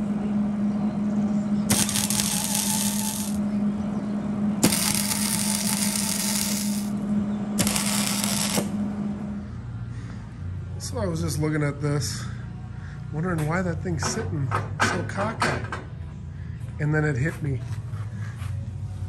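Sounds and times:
steady low hum: 0:00.0 - 0:14.5, 0:15.9 - 0:19.0
welder crackling sizzle: 0:01.7 - 0:03.4, 0:04.6 - 0:07.0, 0:07.6 - 0:08.8.

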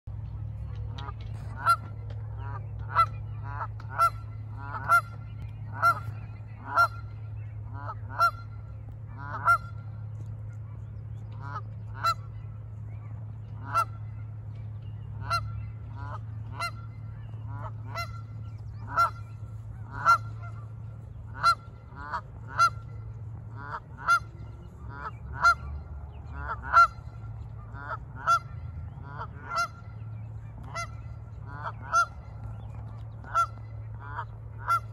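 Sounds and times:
steady low rumble: 0:00.0 - 0:34.9
geese honking: 0:00.7 - 0:10.6, 0:11.2 - 0:34.9.

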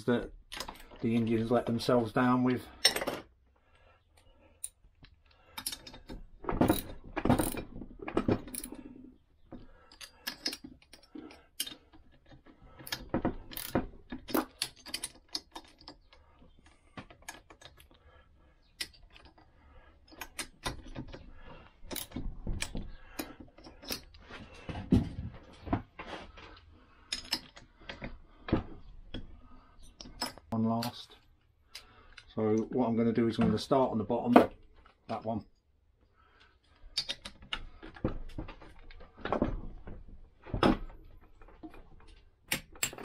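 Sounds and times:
metal tools clinking: 0:02.8 - 0:03.3, 0:18.7 - 0:24.2, 0:27.1 - 0:28.0.

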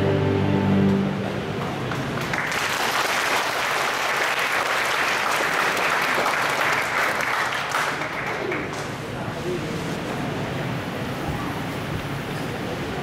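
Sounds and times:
audience applause: 0:01.5 - 0:09.0.

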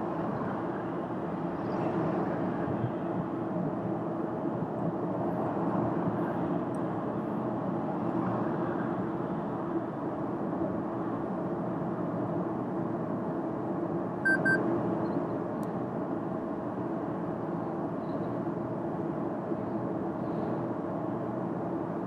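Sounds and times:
road and tyre noise: 0:00.0 - 0:22.0
short electronic beeps: 0:14.2 - 0:14.6.

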